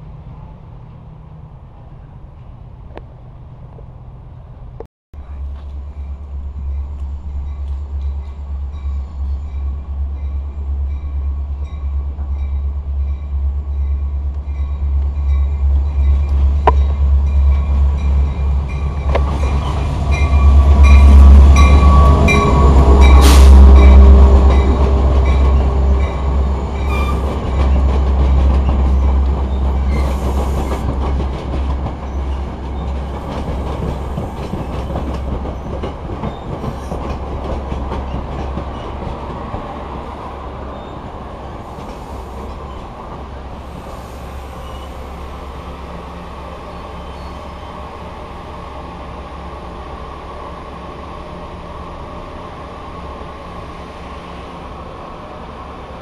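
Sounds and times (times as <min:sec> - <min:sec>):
diesel locomotive engine rumble: 0:00.0 - 0:56.0
train wheels clanking on rails: 0:14.4 - 0:39.8.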